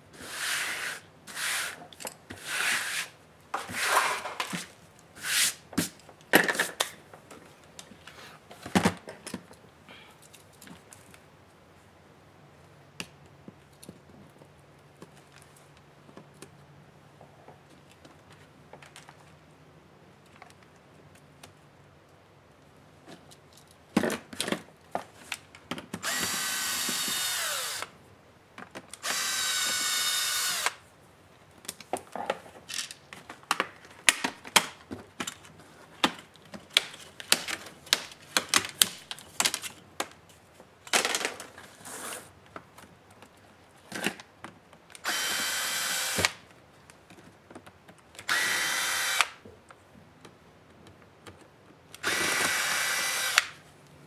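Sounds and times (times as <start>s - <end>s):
cordless screwdriver whirring: 26.0s - 27.9s, 29.0s - 30.8s, 45.0s - 46.4s, 48.3s - 49.4s, 52.0s - 53.6s.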